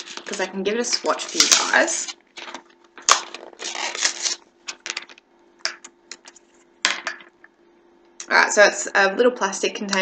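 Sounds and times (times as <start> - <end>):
packaging rustle: 0.0 - 5.2.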